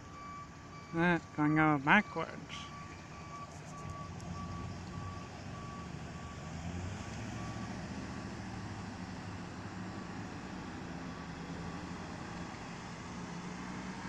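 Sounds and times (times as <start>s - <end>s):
truck backup alarm beeping: 0.0s - 8.5s
road vehicles passing: 0.0s - 14.0s.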